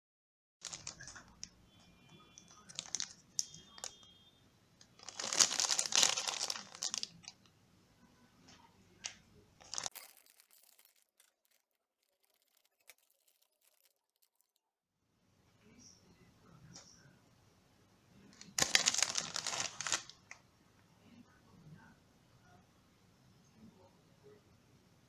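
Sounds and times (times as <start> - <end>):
bag tearing open: 0.6 - 1.3, 5.0 - 7.3, 9.6 - 14.5, 18.6 - 20.2
plastic pouch crinkling: 0.6 - 1.6, 2.4 - 4.1, 4.8 - 7.5, 9.0 - 14.6, 18.4 - 20.3.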